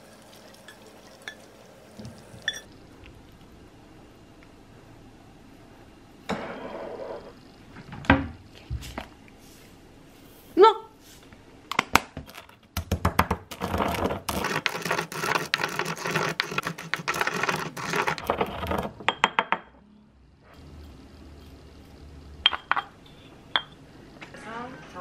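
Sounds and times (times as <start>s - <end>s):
pestle grinding seeds in mortar: 13.3s - 19.0s.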